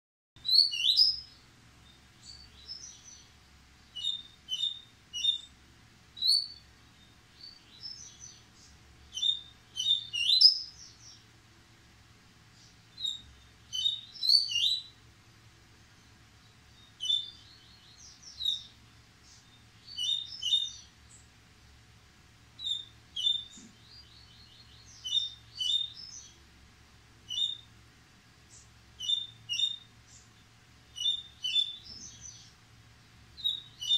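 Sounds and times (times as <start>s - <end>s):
bird singing short high song: 0.4s - 5.5s, 6.2s - 11.3s, 12.5s - 15.0s, 15.9s - 21.3s, 22.6s - 26.4s, 27.2s - 27.7s, 28.5s - 32.6s, 33.3s - 33.9s.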